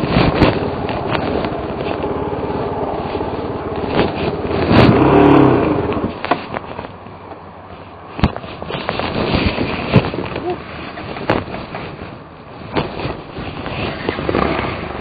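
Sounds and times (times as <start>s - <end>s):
motorcycle knocks and rattles: 0.0s - 7.5s, 8.1s - 15.0s
motorcycle engine running: 0.0s - 15.0s.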